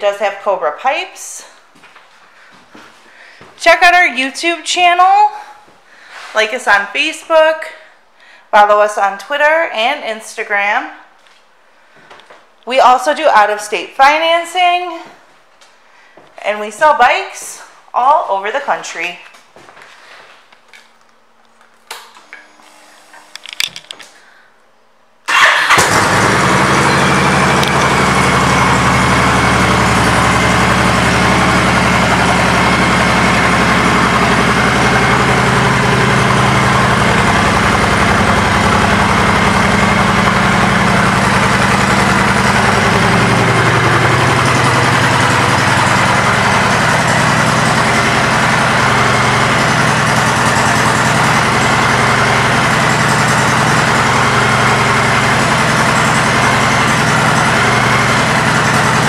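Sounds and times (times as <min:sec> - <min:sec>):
motorcycle engine idling: 0:25.3 - 0:59.0.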